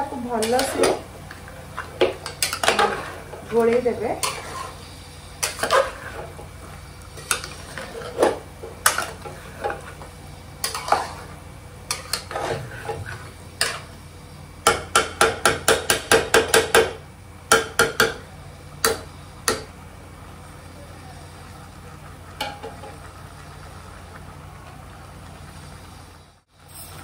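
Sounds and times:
metal spoon scraping pot: 0.4 - 1.0, 2.2 - 4.8, 5.4 - 6.3, 7.2 - 10.0, 10.6 - 11.3, 11.9 - 13.9.

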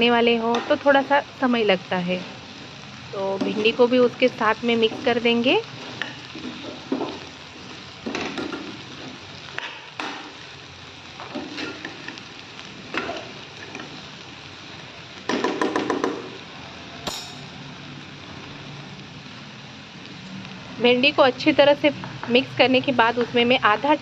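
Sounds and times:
food sizzling frying: 0.0 - 24.0
spatula scraping and knocking pan: 4.8 - 7.2.

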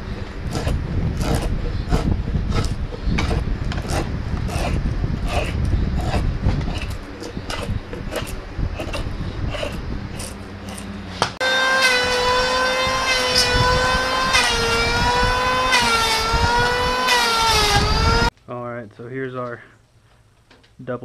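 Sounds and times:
belt sander whining: 0.0 - 18.3
drawknife scraping wood: 0.5 - 11.4.

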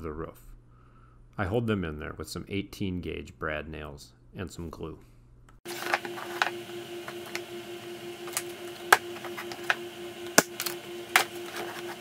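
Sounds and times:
steady hum: 5.7 - 12.0.

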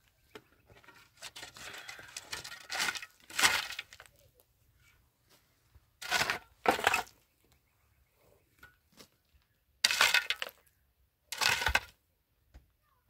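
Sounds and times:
shovel scraping gravelly ground: 0.7 - 4.2, 6.0 - 7.2, 9.8 - 10.7, 11.3 - 12.0.

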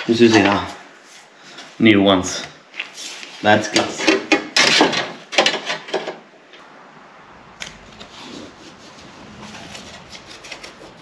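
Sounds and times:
rubbing and scraping of car part: 7.8 - 11.0.

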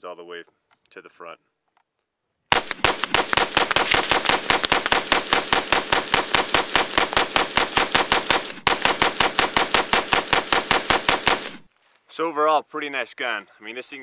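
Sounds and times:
rapid pistol gunfire: 2.5 - 11.7.

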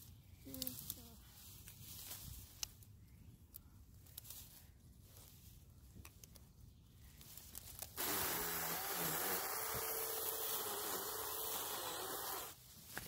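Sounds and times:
electric chainsaw whine: 8.0 - 12.6.

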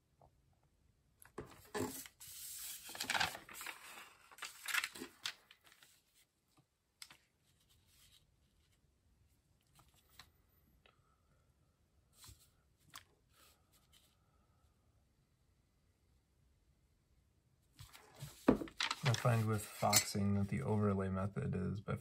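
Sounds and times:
paper rustling and sliding: 1.4 - 6.3, 17.8 - 20.0.

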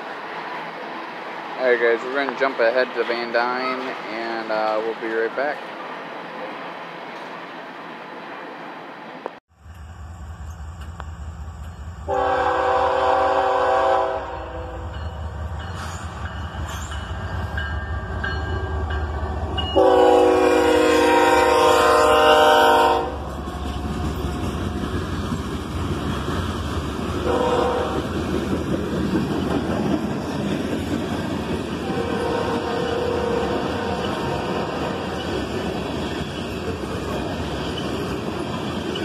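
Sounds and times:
diesel locomotive rumbling: 9.1 - 39.0
locomotive air horn blasts: 12.1 - 14.9, 19.8 - 23.2, 27.2 - 28.0, 31.8 - 34.0.

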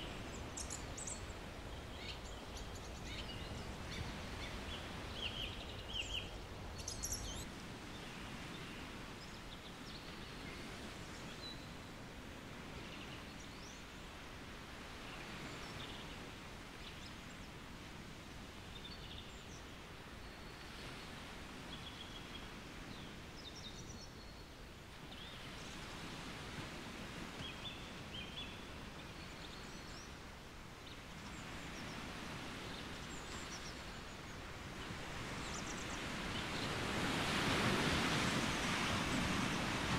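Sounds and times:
distant sea surf: 0.0 - 20.2, 24.7 - 39.9
wind in trees: 0.0 - 39.9
birds chirping: 0.2 - 7.4.

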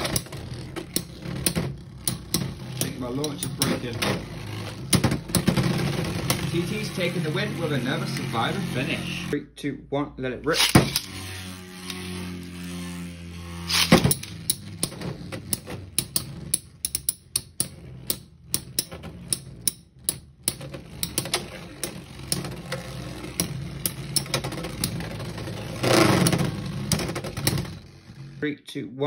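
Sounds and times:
metal tops clacking: 0.0 - 8.5
spinning tops whirring: 0.0 - 9.4, 10.5 - 28.4.

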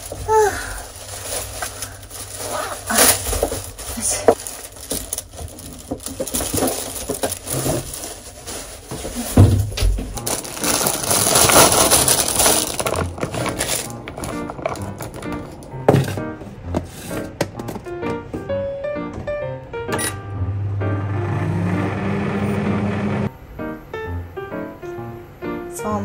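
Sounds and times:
rustling: 0.0 - 17.3
handling clicks and knocks: 12.8 - 18.5.

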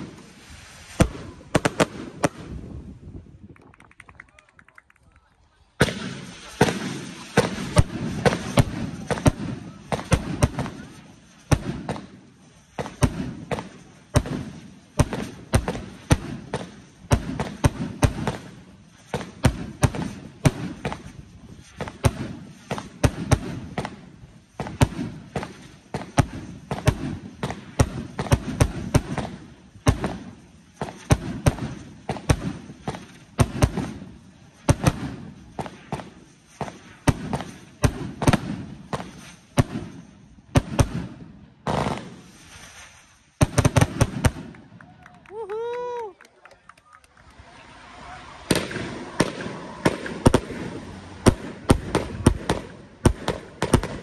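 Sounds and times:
firework cake bangs: 5.8 - 42.2, 48.5 - 54.0.

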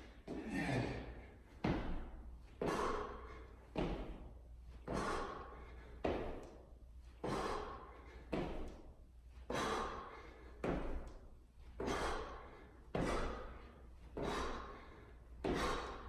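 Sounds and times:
feet thudding on landing: 1.6 - 6.6, 7.2 - 8.9, 10.6 - 11.2, 12.9 - 13.6, 14.2 - 16.0.

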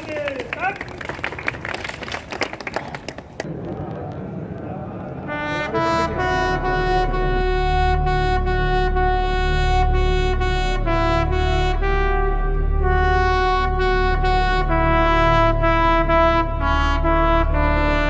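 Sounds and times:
steady low rumble: 3.3 - 18.0
trumpet-led brass music: 5.2 - 18.0.

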